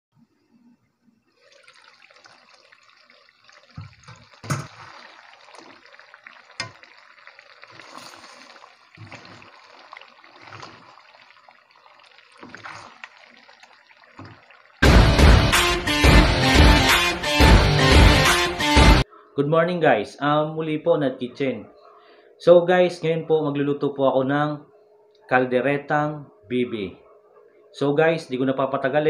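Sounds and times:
wet squelching of stew: 0:01.3 - 0:15.0.

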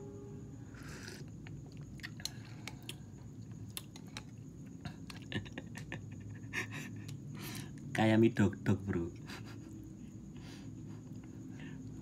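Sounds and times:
wet chewing and mouth smacks: 0:01.0 - 0:05.4.

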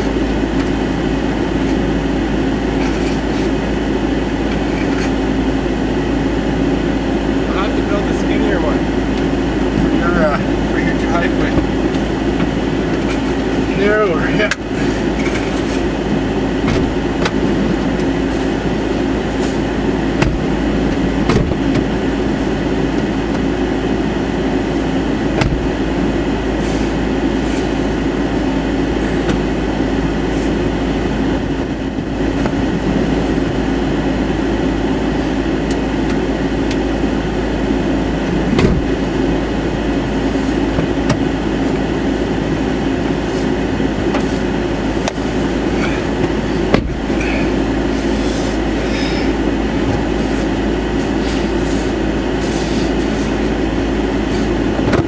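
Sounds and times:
vehicle idling: 0:00.0 - 0:55.0.

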